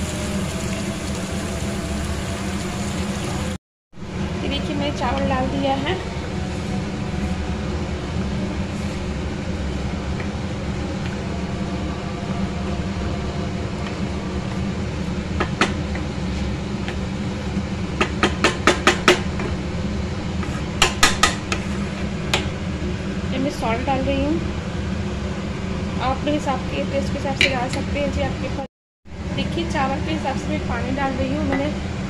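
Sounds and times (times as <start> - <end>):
steady low hum: 0.1 - 32.0
spatula tapping pan: 20.8 - 21.7.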